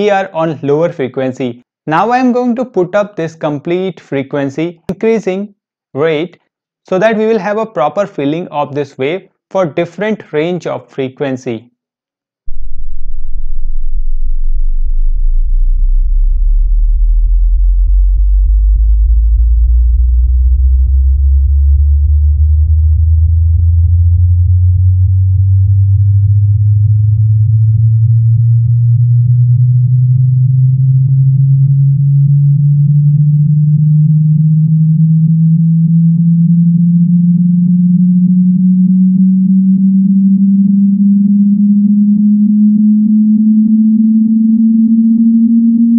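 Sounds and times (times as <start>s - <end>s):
rising sine-wave tone: 12.5s - 45.9s.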